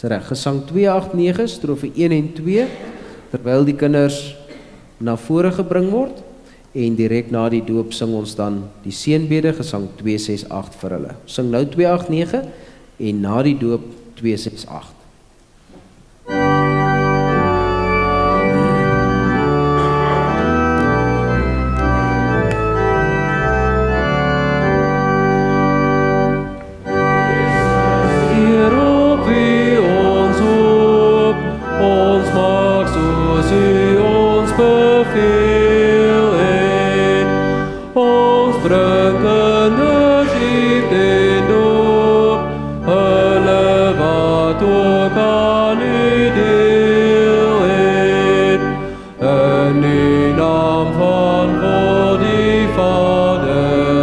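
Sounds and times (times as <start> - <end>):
organ playing held chords: 16.2 - 54.0
congregation singing a hymn: 16.3 - 54.0.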